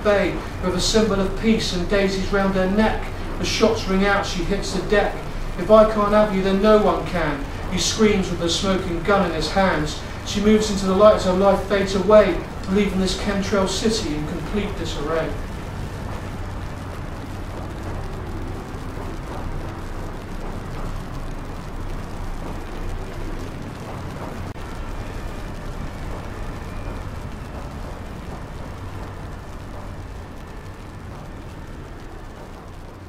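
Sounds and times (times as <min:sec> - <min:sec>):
low rumbling background noise: 0:00.0 - 0:33.0.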